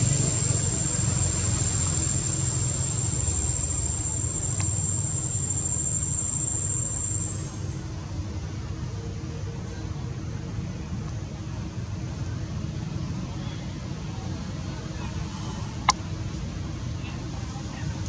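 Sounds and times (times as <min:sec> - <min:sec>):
thin high steady whine: 0:00.0 - 0:18.0
faint click: 0:04.5 - 0:04.8.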